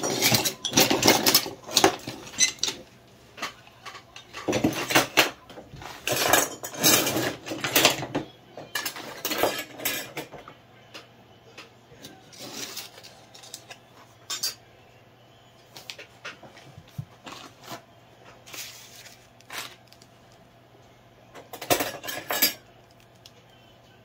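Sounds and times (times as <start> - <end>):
hand tools clattering on a bench: 0.0 - 2.8.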